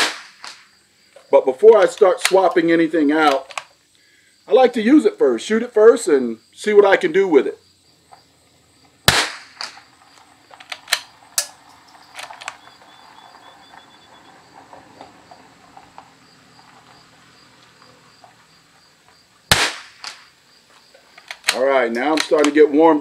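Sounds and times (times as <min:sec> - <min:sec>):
rifle shots: 0:00.0 - 0:00.7, 0:09.0 - 0:09.9, 0:19.5 - 0:20.4
sharp clicks: 0:09.1 - 0:12.8, 0:21.2 - 0:22.6.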